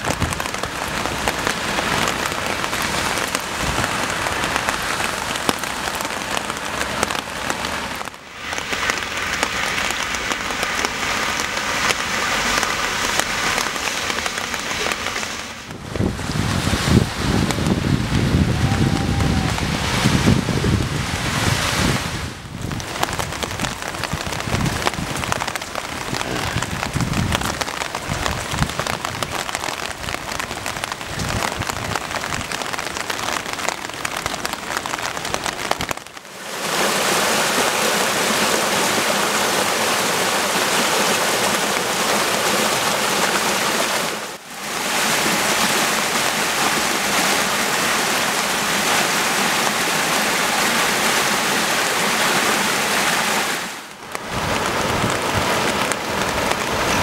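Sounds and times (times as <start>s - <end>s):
rain on a wet street: 0.0s - 57.0s
stormwater gushing from drains: 0.0s - 57.0s
wind buffeting microphone: 15.6s - 32.6s, 54.2s - 57.0s.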